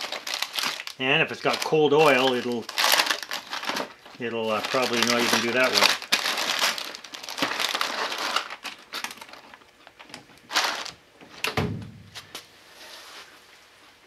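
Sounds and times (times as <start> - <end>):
dull thump: 11.6 - 12.2.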